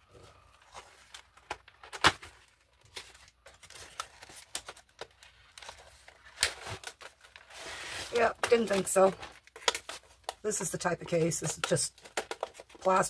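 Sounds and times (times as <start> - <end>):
cardboard and plastic scraping: 0.1 - 10.3.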